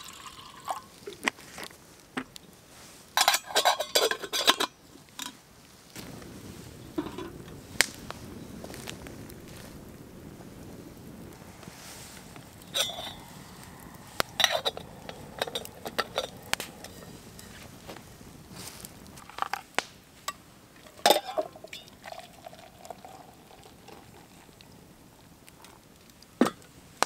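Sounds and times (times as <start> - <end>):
water pouring into metal mug: 0.0 - 0.9, 20.9 - 24.6
metal cookware clinking: 3.2 - 5.4, 12.8 - 13.2, 20.8 - 21.9.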